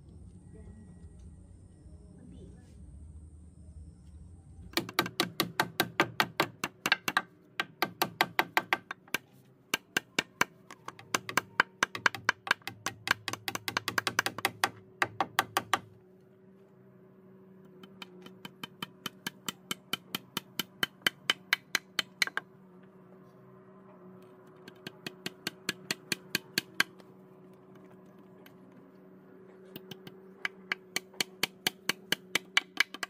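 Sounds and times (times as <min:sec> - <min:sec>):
faint steady hum: 0:00.0 - 0:33.0
hammer knocking on wood: 0:04.8 - 0:09.2, 0:09.8 - 0:15.9.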